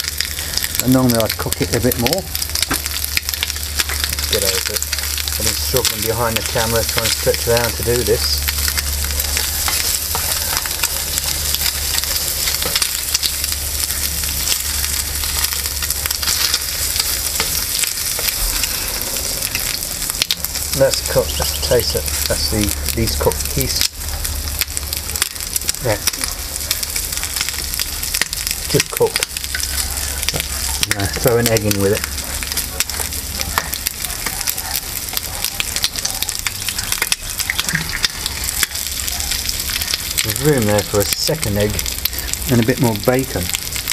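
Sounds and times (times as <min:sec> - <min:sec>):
bacon sizzling and crackling: 0:00.0 - 0:43.9.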